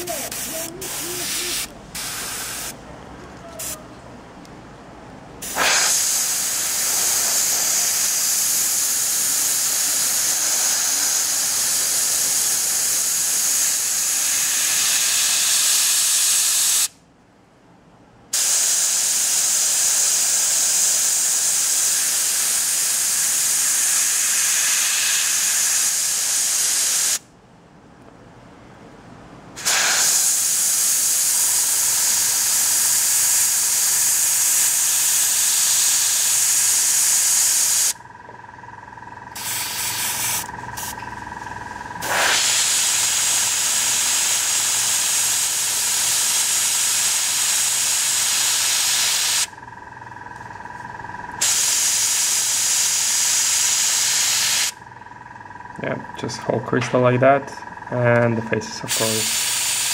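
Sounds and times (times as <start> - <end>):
airbrush spraying hiss: 0.0 - 2.8, 5.4 - 16.9, 18.4 - 27.2, 29.6 - 38.0, 39.4 - 41.0, 42.0 - 49.5, 51.4 - 54.8, 58.8 - 59.9.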